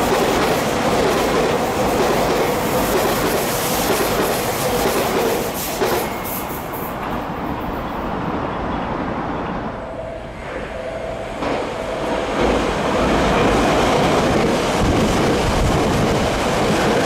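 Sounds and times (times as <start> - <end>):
train passing at speed: 0.0 - 17.0.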